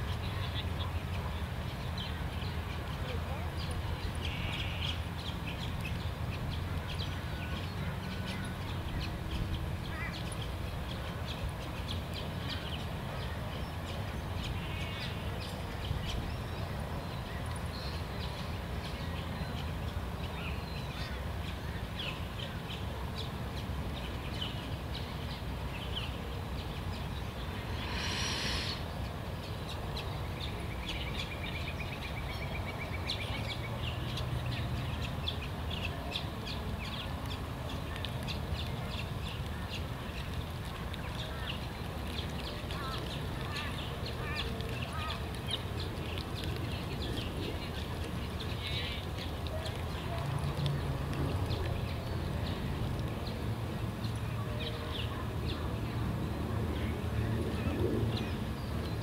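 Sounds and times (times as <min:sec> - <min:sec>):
bird chirps: 0:27.1 - 0:29.2
harsh bird call: 0:27.5 - 0:29.1.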